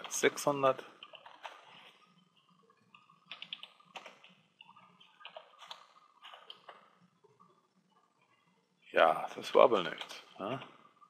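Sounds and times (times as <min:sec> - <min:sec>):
keyboard and mouse clicks: 0:01.0 - 0:01.9, 0:02.9 - 0:06.8.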